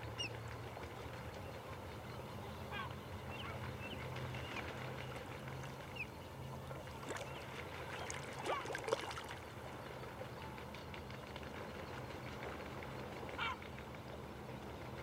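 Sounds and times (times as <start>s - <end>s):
water splashing and trickling: 6.5s - 9.8s.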